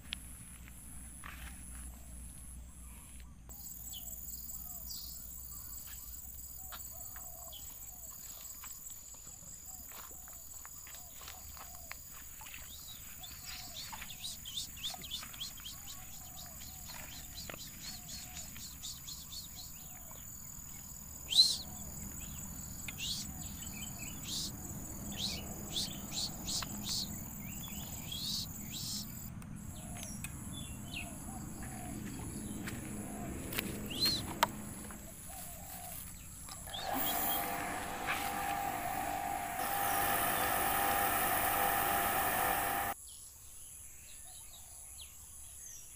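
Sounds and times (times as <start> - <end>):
small birds chirping: 1.0 - 43.2
electric water pump motor humming: 36.6 - 43.0.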